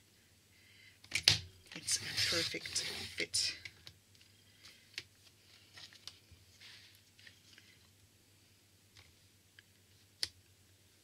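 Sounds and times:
soft paper rustle: 1.8 - 3.6, 4.2 - 8.0.

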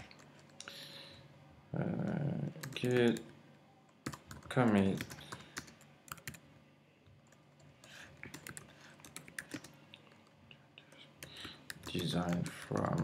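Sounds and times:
typing on computer keyboard: 2.6 - 3.2, 4.0 - 6.4, 7.3 - 9.8, 10.9 - 13.0.

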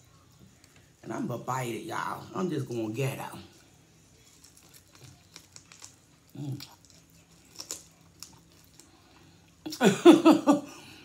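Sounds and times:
person chewing steak: 4.2 - 9.6.

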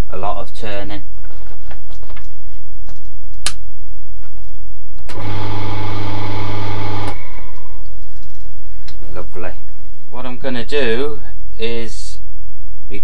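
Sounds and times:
lathe motor humming: 5.1 - 7.9.

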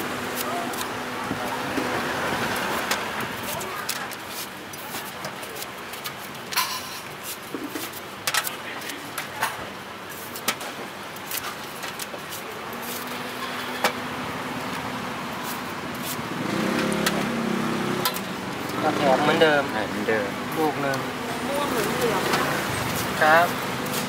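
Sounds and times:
street traffic noise: 0.0 - 24.0
vehicle engine hum: 10.8 - 24.0
knife slicing apples: 15.4 - 17.4, 21.6 - 24.0.

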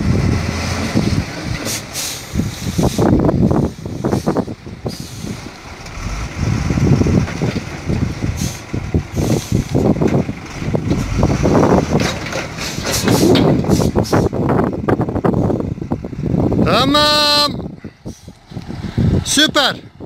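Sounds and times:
earth sliding out of truck: 0.0 - 14.6
diesel truck engine under load: 0.0 - 20.0.

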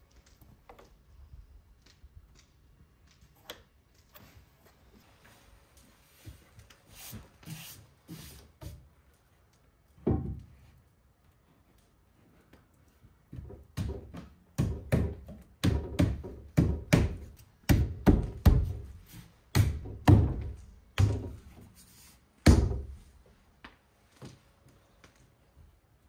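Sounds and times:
sharp knocks on wood: 13.4 - 18.8.

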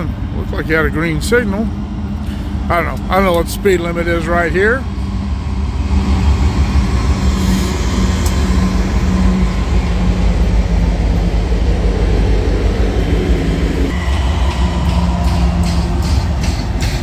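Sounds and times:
constant low hum: 0.0 - 17.0
freight train passing rumble: 0.0 - 17.0.

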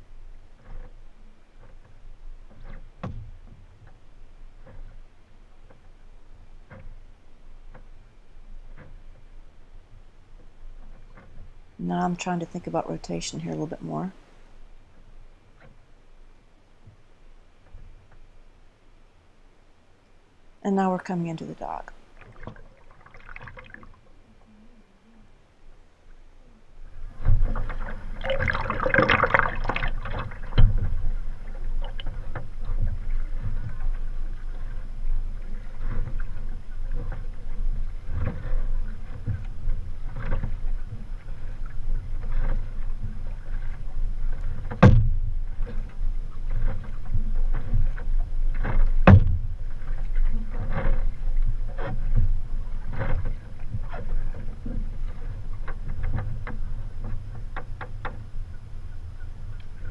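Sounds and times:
paddle blades splashing: 0.0 - 59.9
sharp knocks: 44.7 - 45.3, 49.0 - 49.5.

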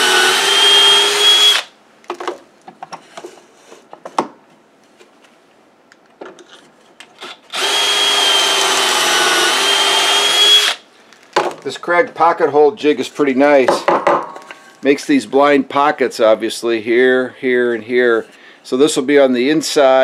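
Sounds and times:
cordless drill whining: 0.0 - 1.7, 7.2 - 10.8.

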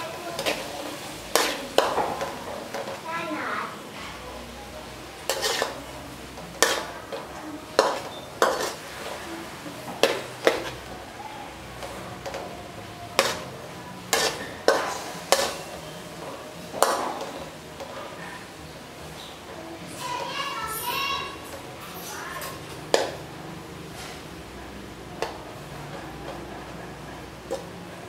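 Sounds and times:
meat sizzling: 0.0 - 3.9, 4.8 - 23.9
metal spatula clanking on wok: 1.3 - 3.0, 5.2 - 5.8, 6.6 - 8.8, 13.2 - 13.5, 14.1 - 15.8.

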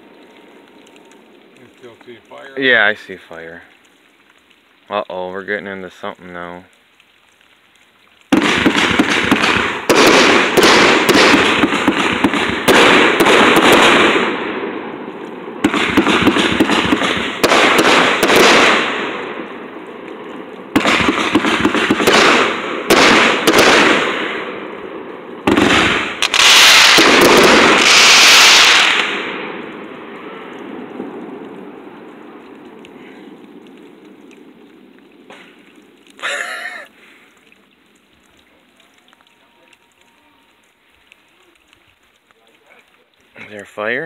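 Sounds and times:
fireworks shots and bursts: 8.3 - 32.1.

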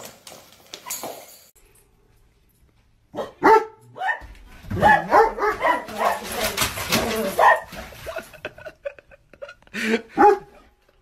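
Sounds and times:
large dog barking: 3.2 - 7.8, 10.1 - 10.6.

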